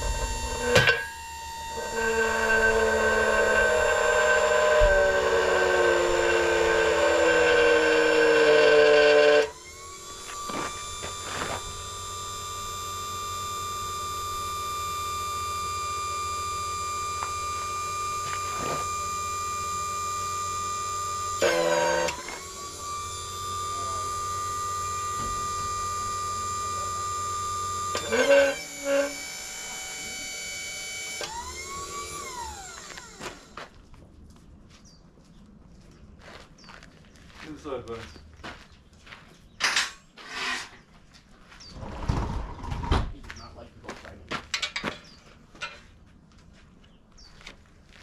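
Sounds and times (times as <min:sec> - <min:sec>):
hydraulic pump whining: 0:00.0 - 0:33.8.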